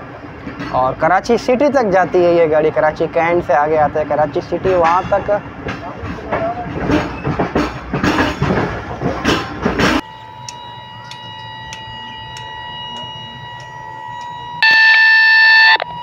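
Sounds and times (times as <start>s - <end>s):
train running noise: 0.0s - 14.9s
steady electronic tone: 10.0s - 16.0s.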